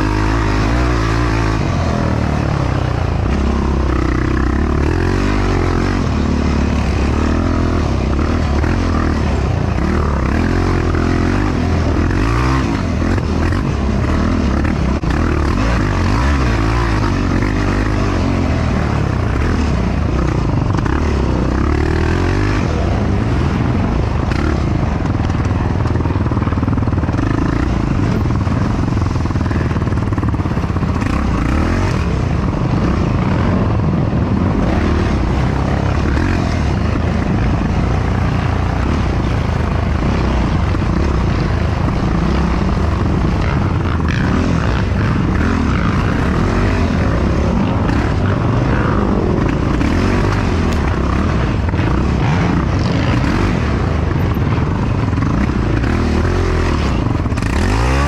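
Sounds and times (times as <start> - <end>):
atv engine revving: 0.0 - 58.0.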